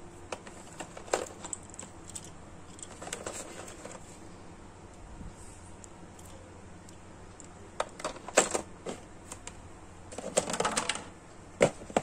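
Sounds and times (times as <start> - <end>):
plastic toy clicks and rattles: 7.4 - 12.0.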